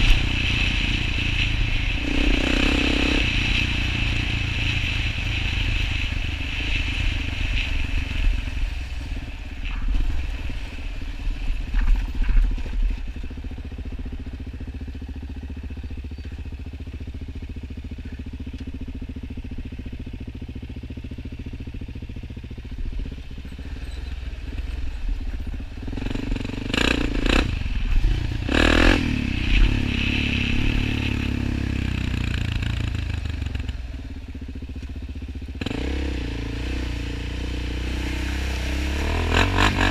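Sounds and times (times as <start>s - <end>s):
quad engine revving: 0.0s - 6.0s, 25.8s - 33.8s, 35.6s - 39.9s.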